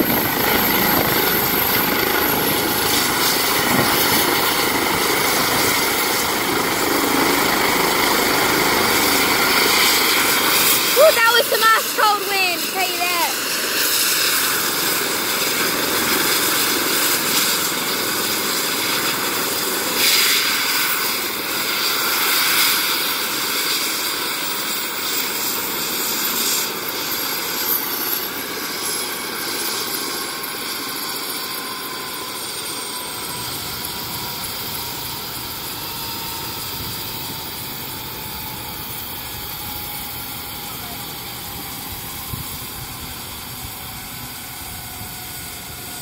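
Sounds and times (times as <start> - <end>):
helicopter turbine and rotor winding down: 0.0 - 46.0.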